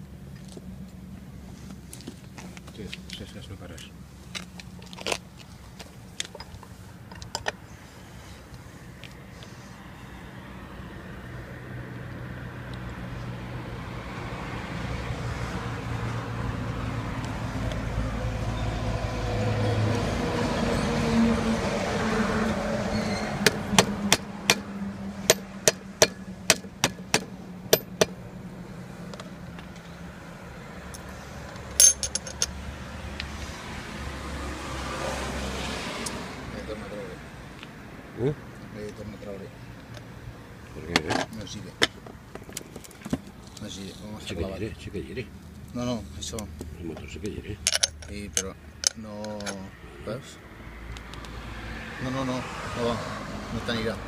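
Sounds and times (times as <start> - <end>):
vehicle engine: 0.0 - 54.0
metal parts clicking on metal case: 31.8 - 32.5, 47.6 - 49.6.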